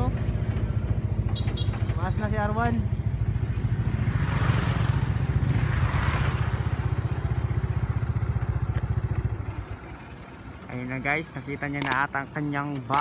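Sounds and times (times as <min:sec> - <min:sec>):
engine idling: 0:06.6 - 0:13.0.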